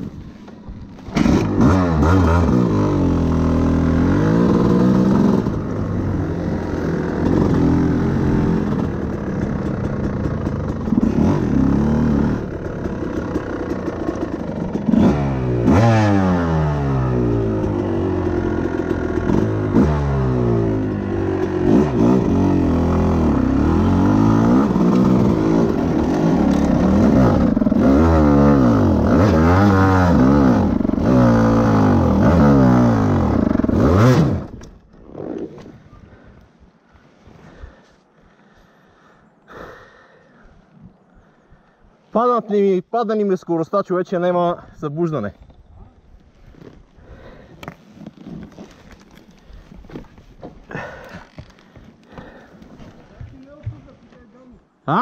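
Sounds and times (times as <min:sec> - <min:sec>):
dirt bike engine revving: 0:01.0 - 0:35.6.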